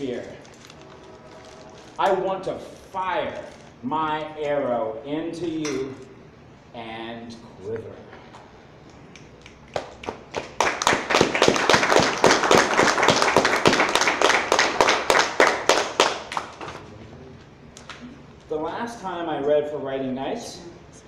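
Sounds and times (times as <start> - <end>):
audience clapping: 9.1 - 16.8.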